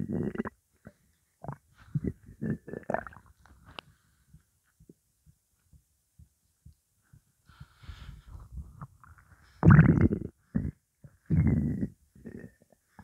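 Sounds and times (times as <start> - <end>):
stomach gurgling: 0.0 - 3.9, 8.5 - 13.0.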